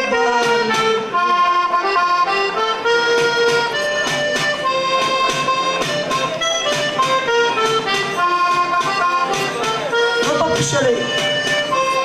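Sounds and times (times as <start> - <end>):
person singing verses: 0.0 - 1.0
accordion playing: 0.0 - 12.0
steady percussive beat: 0.0 - 12.0.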